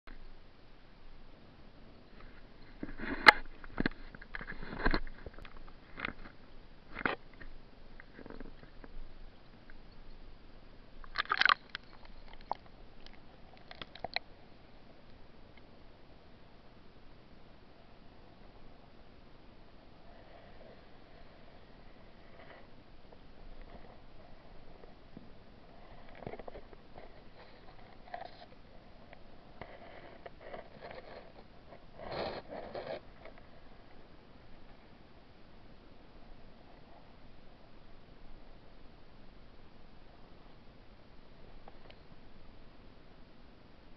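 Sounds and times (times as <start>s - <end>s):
low steady hiss: 0.1s - 43.9s
muffled underwater scrapes: 2.2s - 6.3s, 25.7s - 28.6s, 29.4s - 33.4s
small underwater clicks: 11.0s - 14.3s.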